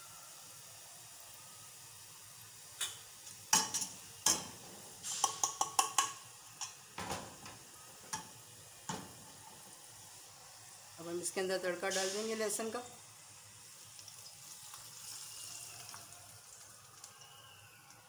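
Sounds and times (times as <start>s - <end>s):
faint sizzle of frying: 0.0s - 18.0s
utensils and cookware clinking: 2.8s - 9.2s.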